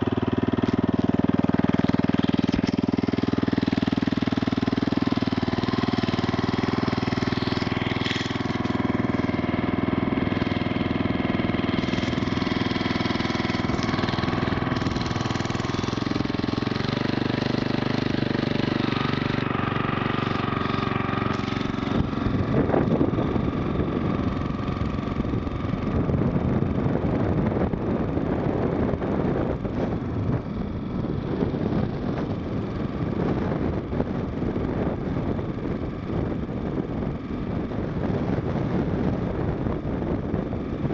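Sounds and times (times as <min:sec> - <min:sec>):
small engine running: 0:00.0 - 0:40.9
wind rushing over microphone: 0:00.0 - 0:40.9.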